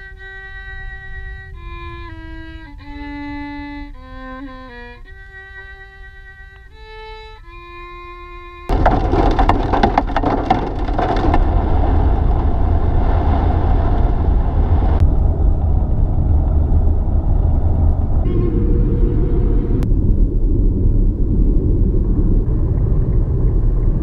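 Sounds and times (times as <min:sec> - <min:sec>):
road and wind rumble: 0:00.0 - 0:24.0
rain pelting car windshield: 0:08.7 - 0:15.0.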